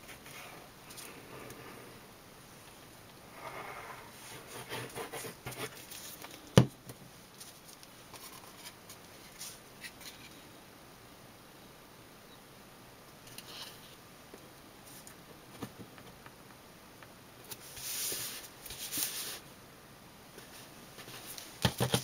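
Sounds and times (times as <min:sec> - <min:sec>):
paper rustling and sliding: 0:17.5 - 0:19.4.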